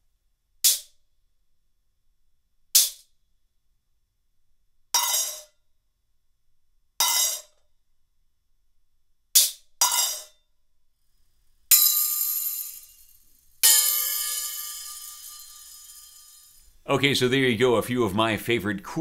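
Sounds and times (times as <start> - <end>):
trashy effect cymbal crashes: 11.7 - 16.6.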